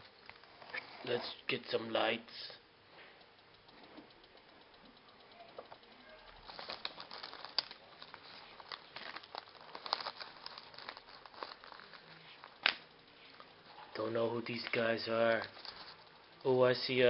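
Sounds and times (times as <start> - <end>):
card pack wrapper crinkling: 6.3 - 12.9, 14.5 - 16.1.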